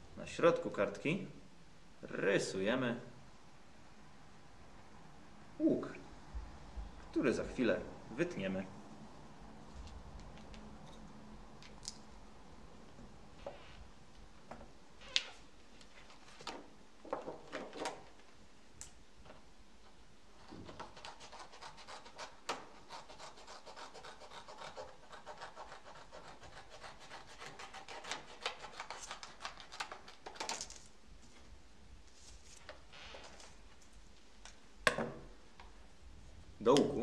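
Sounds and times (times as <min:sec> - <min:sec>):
scissors cutting paper: 0:20.6 - 0:30.5
paper rustling: 0:28.2 - 0:31.5, 0:32.1 - 0:34.0.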